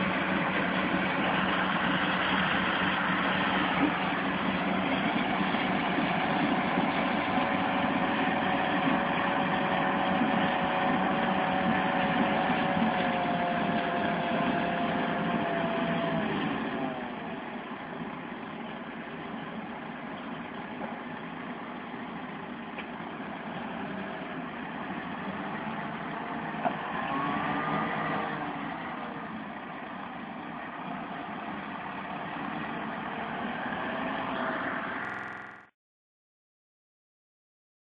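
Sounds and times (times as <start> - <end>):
harvester whining: 0.0 - 35.7
tractor diesel engine: 0.0 - 35.7.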